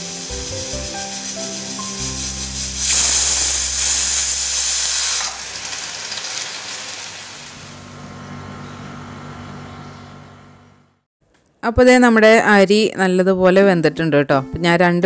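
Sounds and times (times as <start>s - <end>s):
pressure cooker steam hissing: 0.0s - 7.7s.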